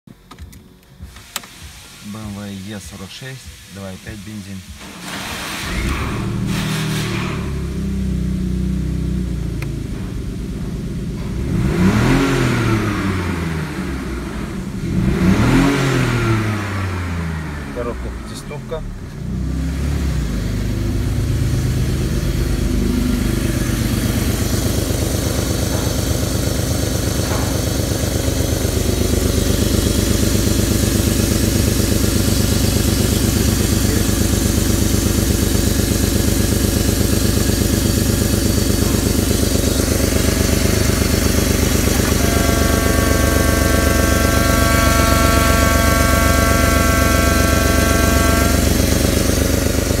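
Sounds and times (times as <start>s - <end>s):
car engine idling: 0.1s - 50.0s
high steady whine: 21.9s - 50.0s.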